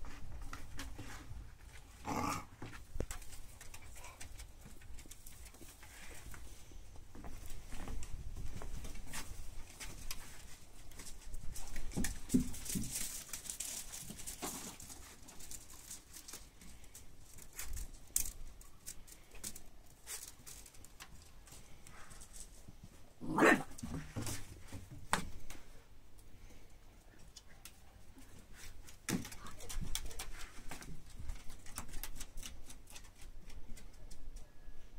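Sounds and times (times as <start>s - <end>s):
puppy claws clicking on wood: 3.0s - 5.9s, 28.8s - 34.4s
puppy barking: 23.3s - 23.7s.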